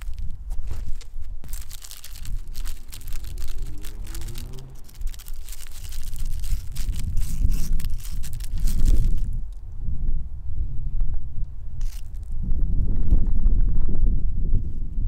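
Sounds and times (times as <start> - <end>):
gravel crunching clicks: 0.0 - 9.6, 11.4 - 12.4
wind rumble on microphone: 0.0 - 15.0
faint low hum rising in pitch: 1.4 - 7.3.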